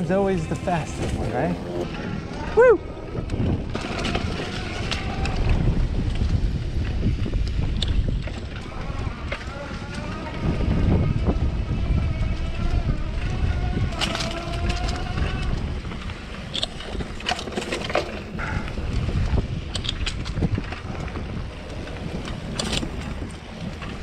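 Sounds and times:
electric motor whine: 0.0 - 2.5, 8.6 - 16.0
bike clicks and rattles: 0.0 - 24.0
wind buffeting microphone: 0.0 - 24.0.

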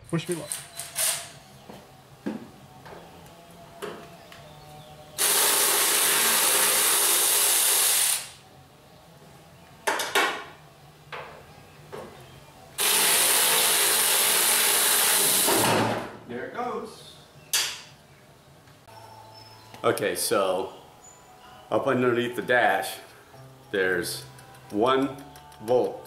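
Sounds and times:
power driver running: 0.3 - 8.4, 12.8 - 15.7.

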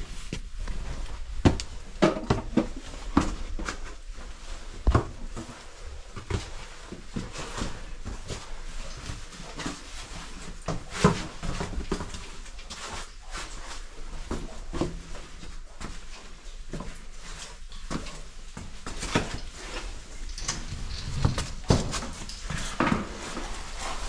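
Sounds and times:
footsteps on stony ground: 0.0 - 2.0.

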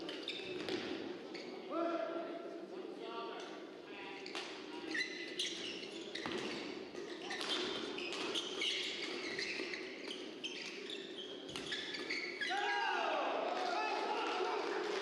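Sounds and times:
shoes squeaking on court floor: 0.0 - 1.6, 4.2 - 12.8
indoor hall background noise: 0.0 - 15.0.

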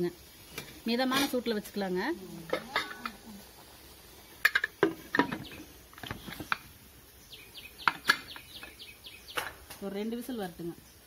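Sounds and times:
metal lid clicks and knocks: 4.4 - 6.6
bird chirping: 5.1 - 11.0.

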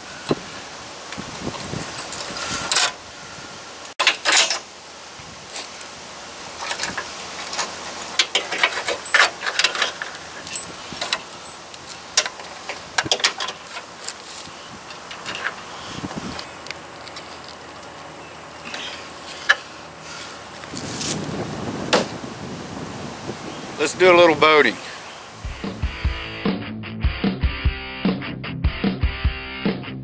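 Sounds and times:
metal latch clicks and clinks: 12.2 - 13.9.

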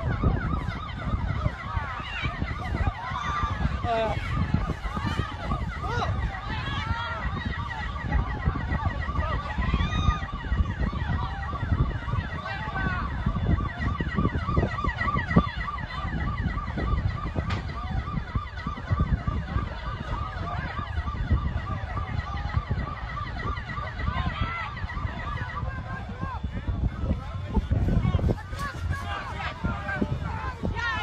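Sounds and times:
sirens yelping: 0.0 - 31.0
steady low rumble: 23.6 - 31.0.

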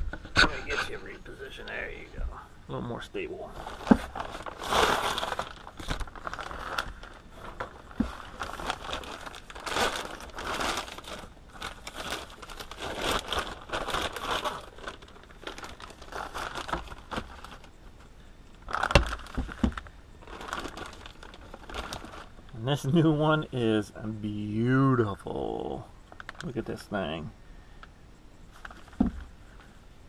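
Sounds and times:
plastic wrapping crinkling: 3.5 - 18.0, 18.6 - 22.6.

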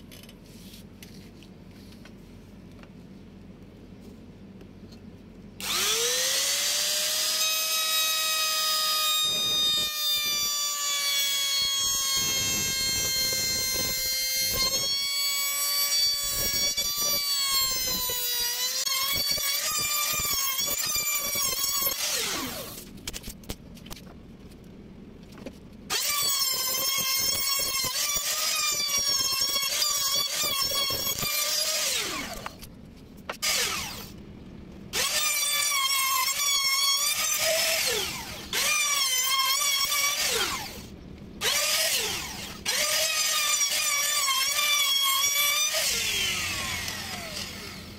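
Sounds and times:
trim router whining: 5.6 - 22.8, 25.9 - 32.6, 33.4 - 34.1, 35.0 - 47.9.

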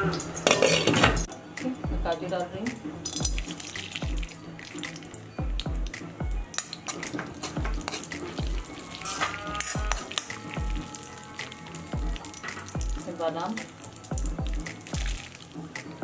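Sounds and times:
spoon scraping and clinking pan: 0.0 - 1.3, 6.5 - 10.5
nuts sizzling in hot fat: 0.0 - 16.0
thumping background music: 0.0 - 16.0.

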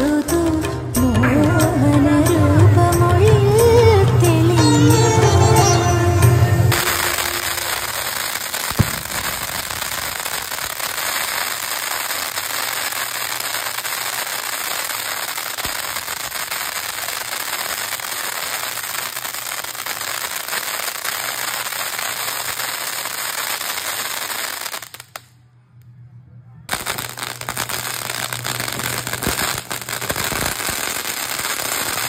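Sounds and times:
fireworks crackling hiss: 0.0 - 1.0, 4.5 - 25.3, 26.7 - 32.0
sharp bang: 4.5 - 10.2.

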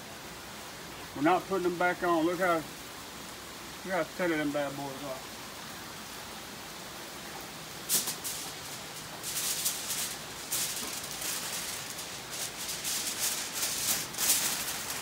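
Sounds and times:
aluminum foil crinkling: 7.8 - 15.0.

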